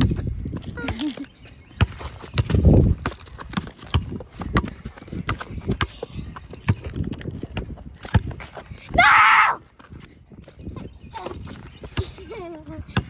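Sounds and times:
basketball bouncing on hard court: 0:01.8 - 0:06.9.

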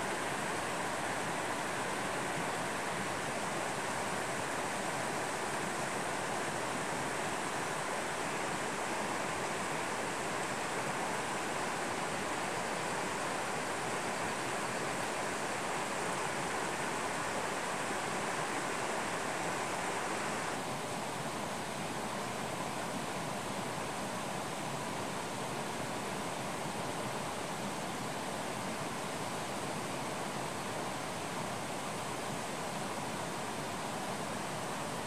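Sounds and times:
mountain stream rushing: 0:00.0 - 0:35.0.

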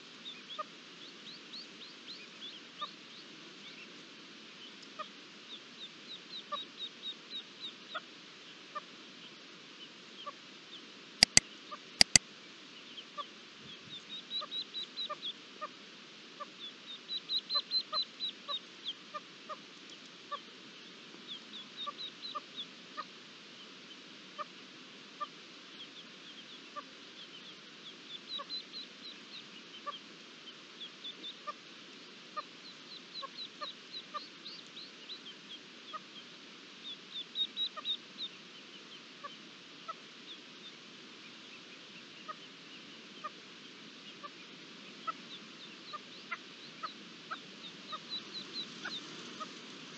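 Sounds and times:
chicks high-pitched calls: 0:12.0 - 0:12.2, 0:13.1 - 0:15.8, 0:16.4 - 0:49.9.

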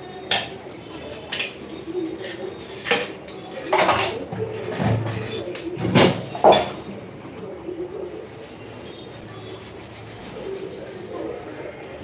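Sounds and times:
dishes and utensils clinking: 0:00.3 - 0:06.9.

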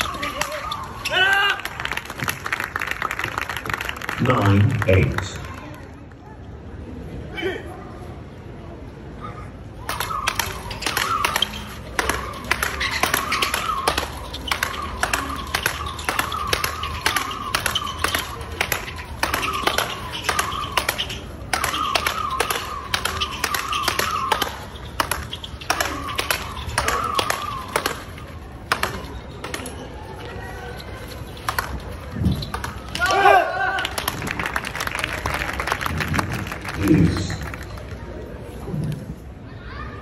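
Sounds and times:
rackets hitting ball: 0:09.8 - 0:33.2.

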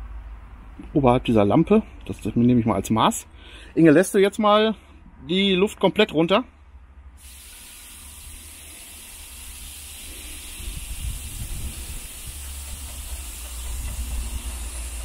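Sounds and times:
compressed air hissing: 0:07.2 - 0:15.0.

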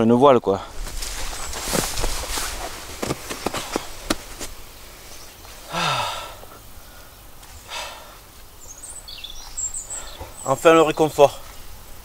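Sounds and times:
man sighing: 0:05.6 - 0:06.6
faint bird chirps: 0:06.6 - 0:11.7.

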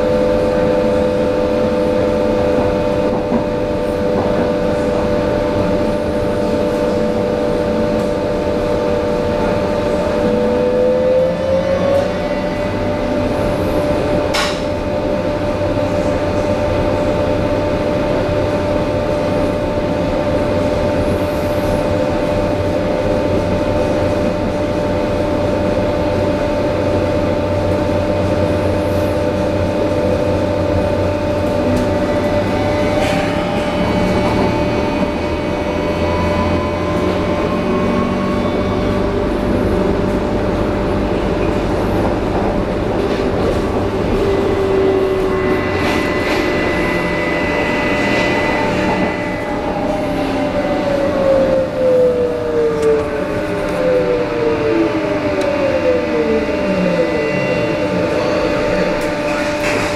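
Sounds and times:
constant whine: 0:00.0 - 0:59.9
train wheels rumbling on track: 0:00.0 - 0:59.9
whine rising in pitch: 0:43.8 - 0:59.2.

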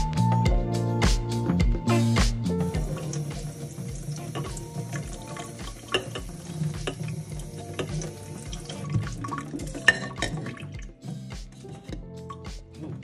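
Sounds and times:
background music with steady beat: 0:00.0 - 0:13.0
tap water splashing on bottle: 0:02.3 - 0:11.5.

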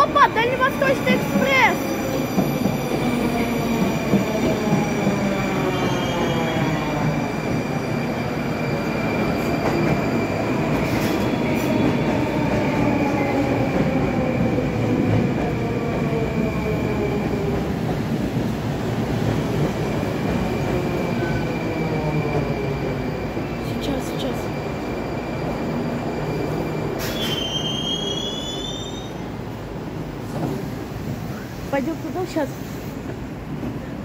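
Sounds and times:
train wheels rumbling on rails: 0:00.0 - 0:34.0.

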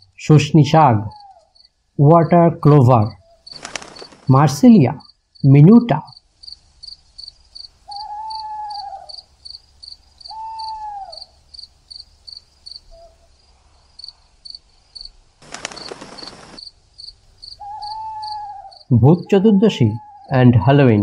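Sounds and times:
crickets chirping: 0:00.0 - 0:21.0
drawn-out rising call: 0:07.8 - 0:09.3, 0:10.3 - 0:11.4, 0:17.5 - 0:20.4.

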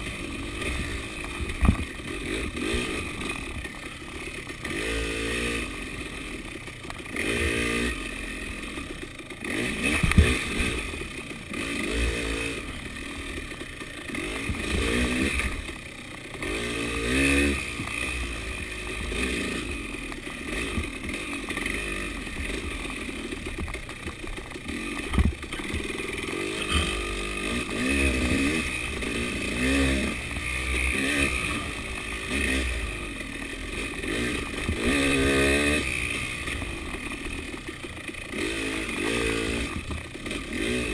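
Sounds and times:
dirt bike engine revving: 0:00.0 - 0:40.9.

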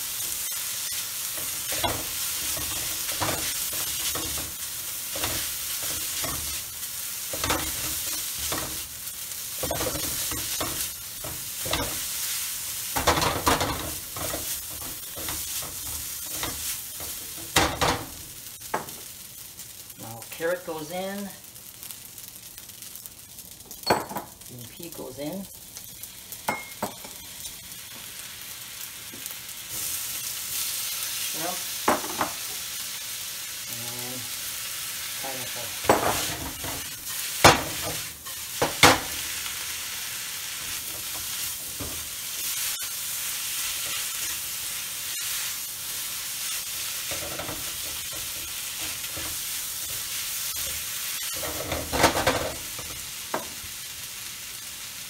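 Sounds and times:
rice sizzling in a wok: 0:00.0 - 0:55.0
spatula knocking and scraping wok: 0:01.3 - 0:08.9, 0:09.6 - 0:12.2, 0:12.9 - 0:19.1, 0:31.8 - 0:32.6, 0:35.8 - 0:39.3, 0:40.7 - 0:42.1, 0:47.0 - 0:53.6.

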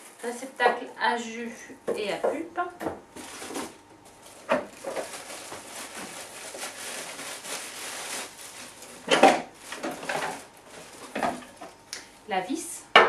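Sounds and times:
packaging rustling in box: 0:03.2 - 0:11.6.

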